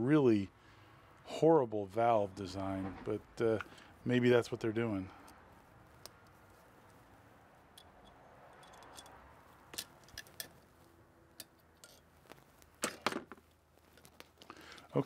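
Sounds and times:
metallic circlip clicks: 7.7s - 10.6s.

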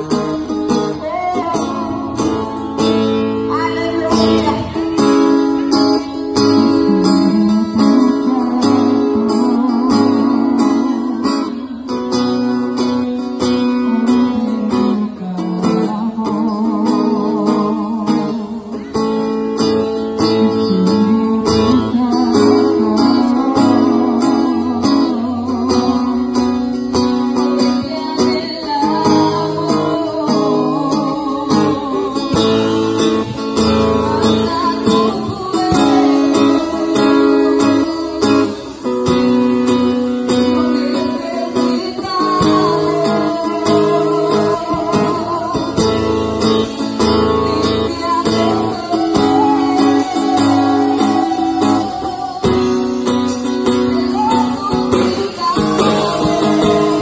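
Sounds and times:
acoustic guitar strumming: 0.0s - 57.0s
people singing into microphones: 27.4s - 57.0s.

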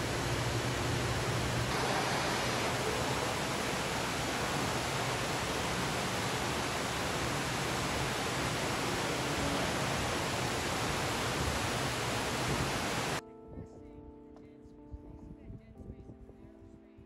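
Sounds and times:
hiss of falling water: 0.0s - 13.2s.

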